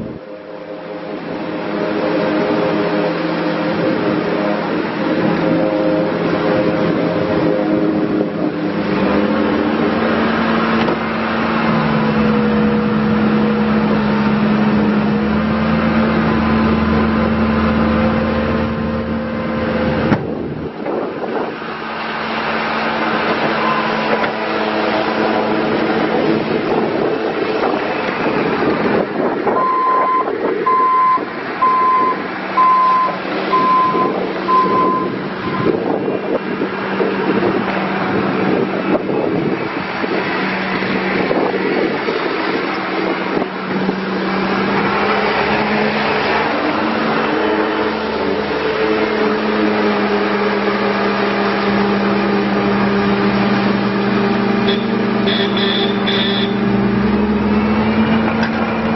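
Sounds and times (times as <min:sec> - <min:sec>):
diesel engine running: 0:00.0 - 0:58.9
backup alarm beeping: 0:29.6 - 0:35.7.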